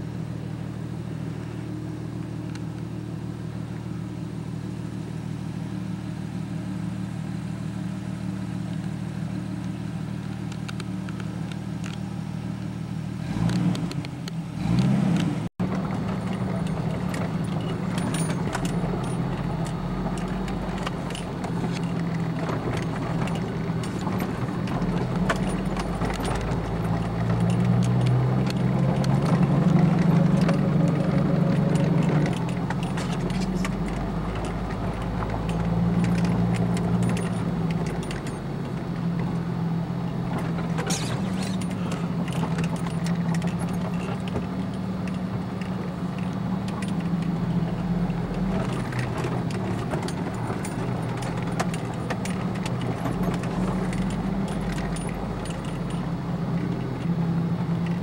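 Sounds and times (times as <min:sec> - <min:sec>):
vehicle engine under load: 0:00.0 - 0:58.0
loose items rattling and jingling: 0:15.6 - 0:38.8, 0:40.3 - 0:57.2.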